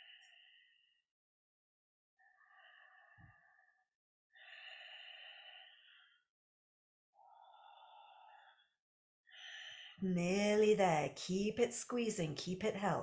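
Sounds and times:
slow deep breaths: 0.0 - 1.0, 2.2 - 6.3, 7.2 - 10.0.

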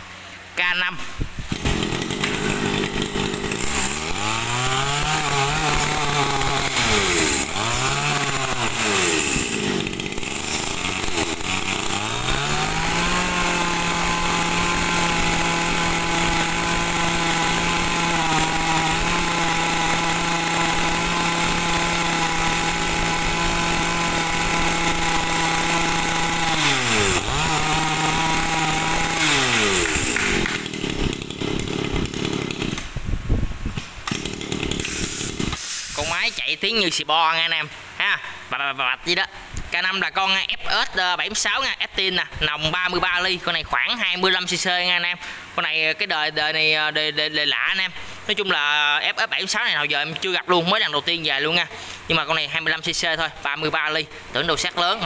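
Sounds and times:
two-stroke brush cutter engine revving: 1.5 - 32.9, 34.1 - 36.4.

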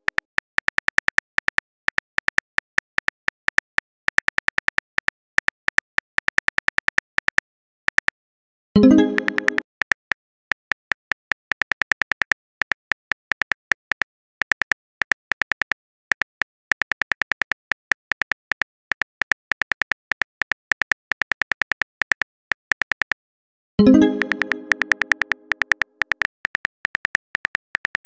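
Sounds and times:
keyboard typing clicks: 8.8 - 10.0, 23.8 - 28.0.

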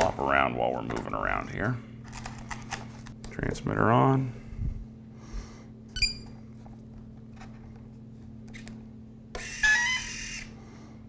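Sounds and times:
steady low hum: 0.0 - 9.4, 10.1 - 11.0
small motor whirring: 9.4 - 10.5.

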